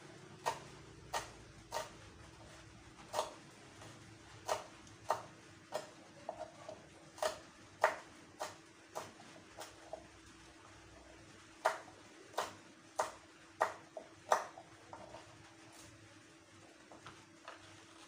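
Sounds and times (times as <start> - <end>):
knife chopping on cutting board: 0.4 - 2.0, 3.0 - 3.4, 4.4 - 9.8, 11.6 - 15.2.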